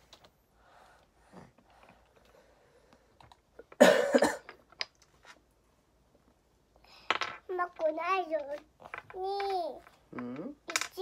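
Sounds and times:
man coughing: 3.8s - 4.5s.

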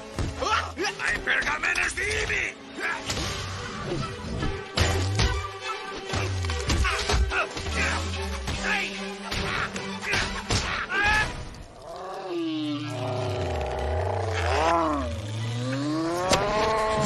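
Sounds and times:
fight soundtrack music: 0.0s - 11.4s
strained groan: 11.8s - 17.0s.

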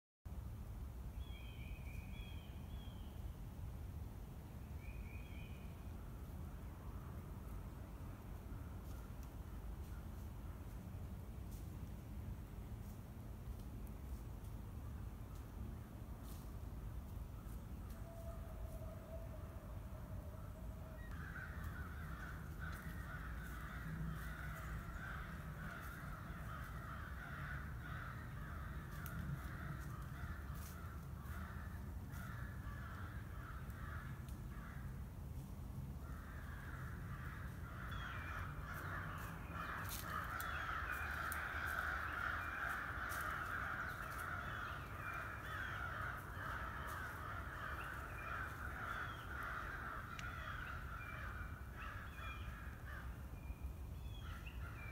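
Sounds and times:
distant cawing animal calls: 17.9s - 54.9s.

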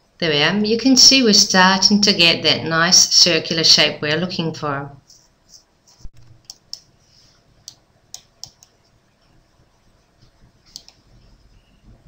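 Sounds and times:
computer mouse clicks: 6.2s - 6.9s, 7.6s - 8.8s, 10.7s - 11.1s.

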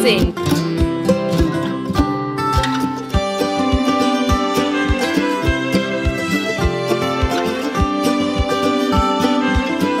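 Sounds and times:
held instrument notes: 0.8s - 10.0s.

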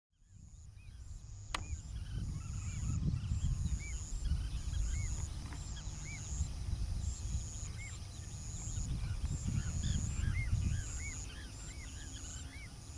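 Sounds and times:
bird chirping: 0.2s - 12.9s
high-pitched insect drone: 0.4s - 12.9s
sharp click: 1.5s - 1.8s.

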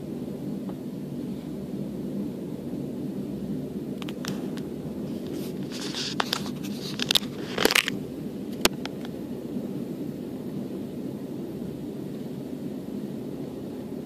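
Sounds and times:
train rumbling: 0.0s - 9.6s
sharp clicks and scraping crackles: 4.0s - 9.2s.

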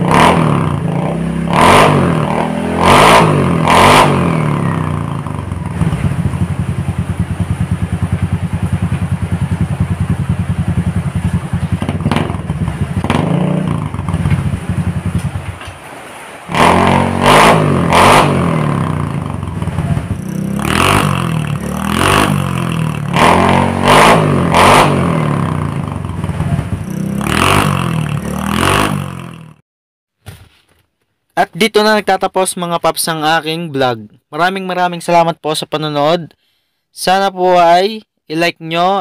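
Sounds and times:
scooter engine idling and revving: 0.0s - 15.7s, 16.5s - 29.6s.

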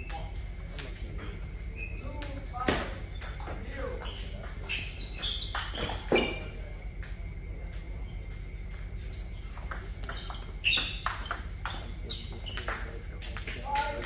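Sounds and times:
ball bouncing on table: 9.6s - 11.8s, 12.4s - 14.0s
ball clicking off paddles: 9.6s - 14.0s.

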